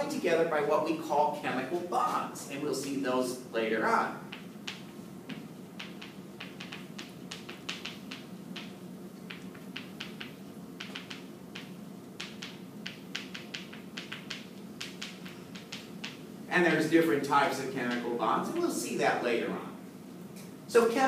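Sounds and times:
low room hum: 0.0s - 21.0s
chalk tapping on a chalkboard: 4.3s - 16.2s.

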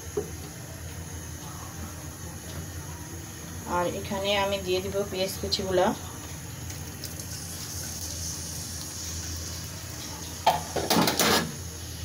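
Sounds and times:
onions sizzling in hot oil: 3.6s - 12.0s.

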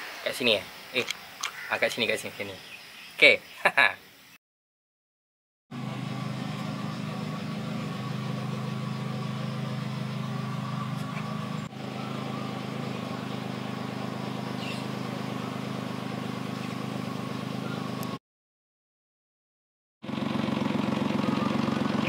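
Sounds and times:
small car engine idling: 5.7s - 18.2s, 20.0s - 22.0s.

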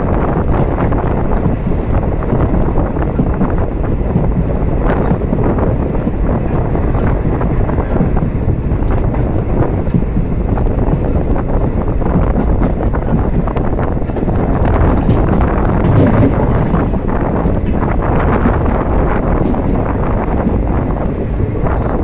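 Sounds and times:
train rumbling along track: 0.0s - 22.0s
wind buffeting microphone: 0.0s - 22.0s.

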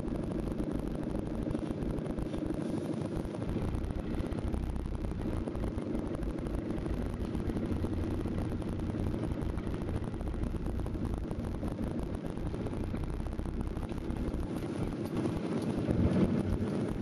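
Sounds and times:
engine running: 0.0s - 17.0s.

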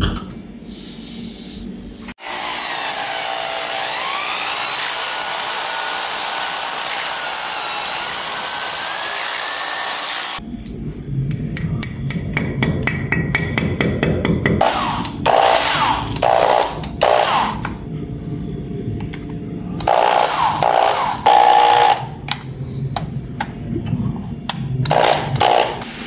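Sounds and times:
electric drill boring into wall: 2.2s - 10.4s, 19.8s - 22.1s, 24.9s - 25.9s
low rumble: 17.7s - 19.9s.

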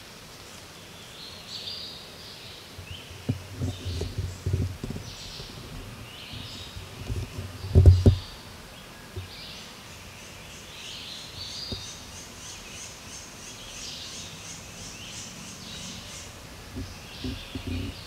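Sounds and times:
birds calling: 1.0s - 18.0s
low thumps: 3.2s - 8.4s, 16.7s - 18.0s.

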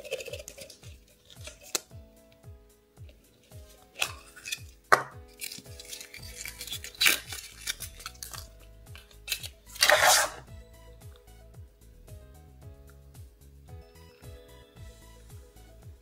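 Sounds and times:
paper crinkling: 0.0s - 1.9s, 3.7s - 10.4s
faint background music: 0.0s - 16.0s
plastic capsule clicks and knocks: 4.0s - 5.6s.

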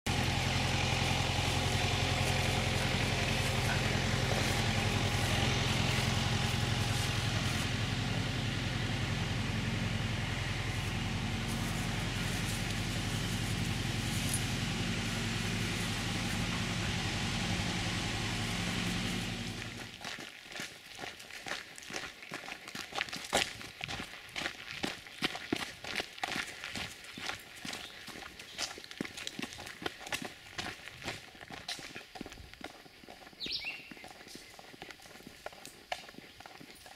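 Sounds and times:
vehicle engine idling: 0.1s - 20.2s.

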